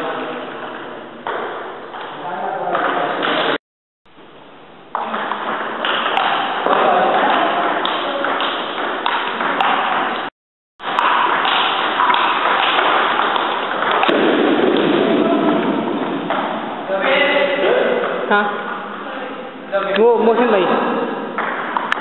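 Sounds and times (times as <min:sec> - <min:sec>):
table tennis ball hits: 0:01.2 - 0:03.6, 0:04.9 - 0:18.8, 0:21.1 - 0:22.0
background din in hall: 0:12.6 - 0:22.0.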